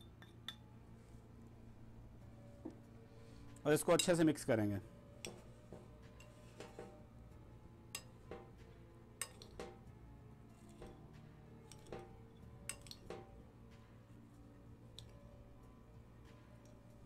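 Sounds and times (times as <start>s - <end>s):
spoon clinking glass bowl: 9.2s - 9.7s.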